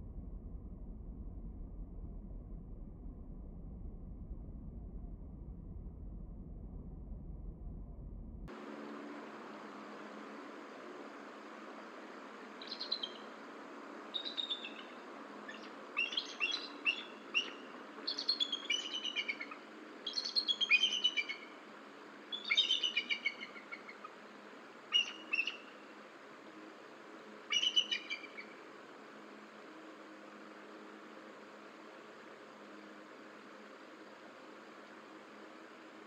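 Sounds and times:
eagle chattering calls: 0:15.5 - 0:21.5, 0:22.3 - 0:24.1, 0:24.9 - 0:25.8, 0:27.5 - 0:28.5.

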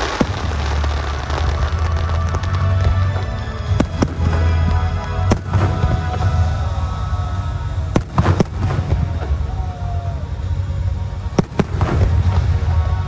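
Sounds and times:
loud music with heavy bass: 0:00.0 - 0:09.1
fireworks bangs: 0:00.0 - 0:13.0.

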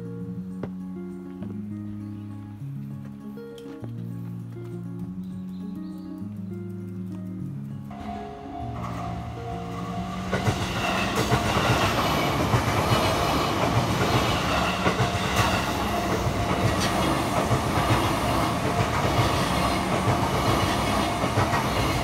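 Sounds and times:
electric train passing: 0:07.9 - 0:22.0
wheels clattering over rail joints: 0:07.9 - 0:22.0.

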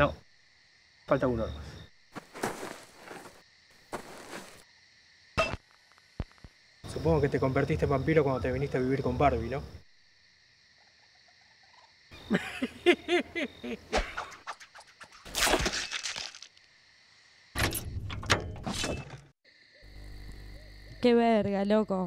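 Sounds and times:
crickets chirring: 0:00.0 - 0:22.0
man laughing: 0:12.3 - 0:14.0.

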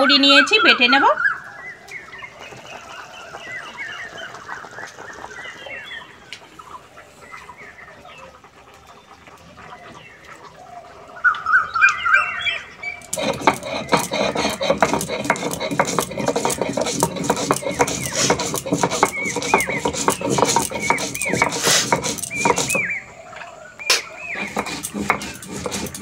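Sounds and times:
chickens clucking: 0:01.9 - 0:11.2, 0:12.9 - 0:26.0
rapid knocking and scraping: 0:13.0 - 0:23.0, 0:24.4 - 0:26.0.

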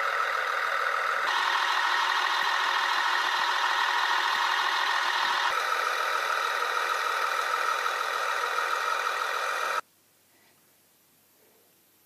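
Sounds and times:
thin hissy engine drone: 0:00.0 - 0:09.8.

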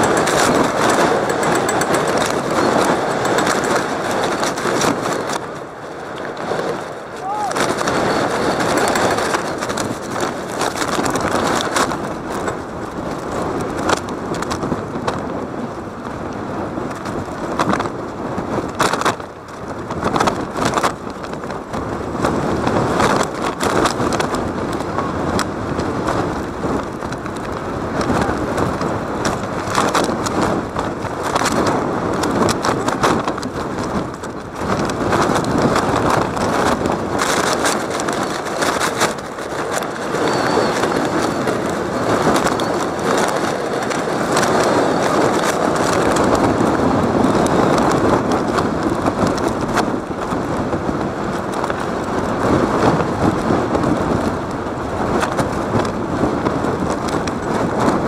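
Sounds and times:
crowd murmur: 0:07.2 - 0:07.8.

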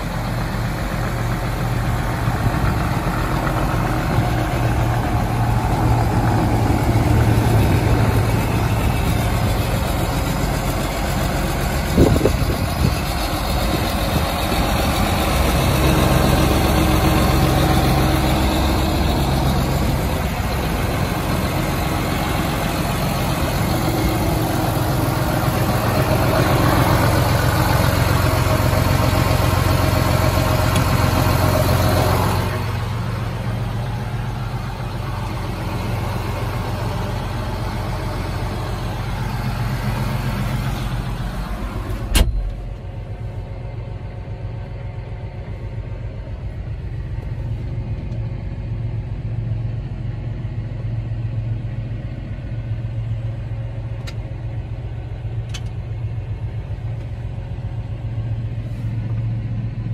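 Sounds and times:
diesel engine idling: 0:00.0 - 0:59.9
loud thump: 0:42.1 - 0:42.6.

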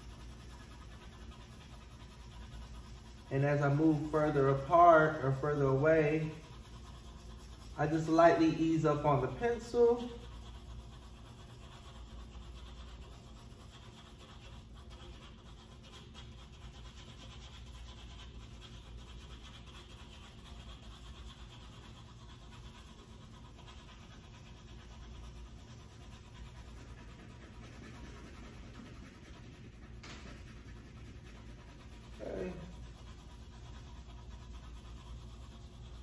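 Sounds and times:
pencil scratching on paper: 0:00.0 - 0:36.0.

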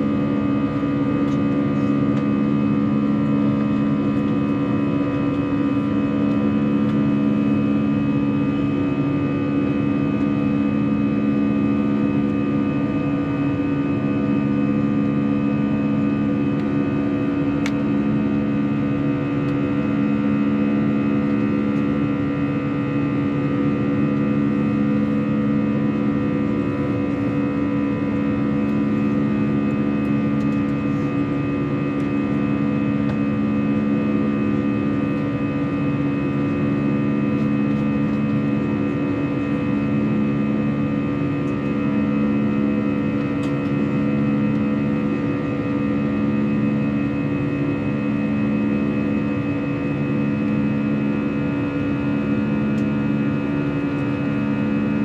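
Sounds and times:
jet engines droning: 0:00.0 - 0:55.0.

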